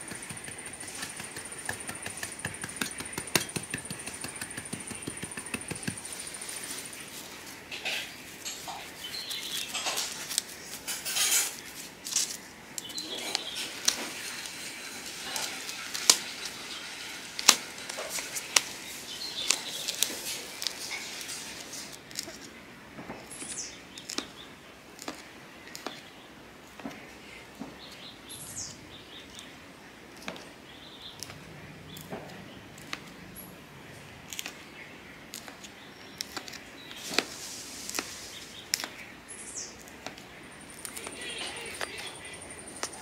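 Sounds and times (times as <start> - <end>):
bird chirping: 0.0 - 10.7, 12.8 - 14.6, 23.2 - 24.6, 30.6 - 43.0.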